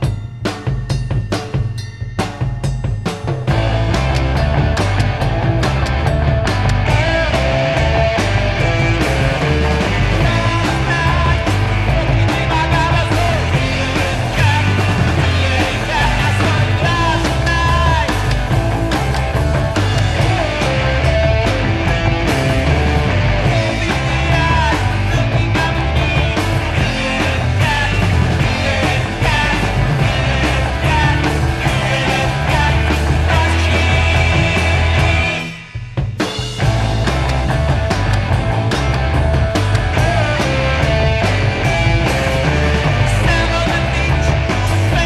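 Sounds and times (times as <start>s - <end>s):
garage punk rock music: 0.0s - 45.0s.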